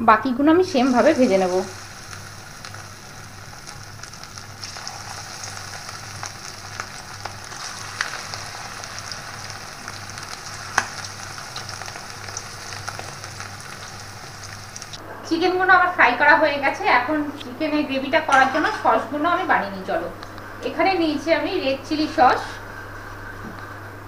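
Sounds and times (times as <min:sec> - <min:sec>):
chicken deep-frying in oil: 0:00.6 - 0:15.0.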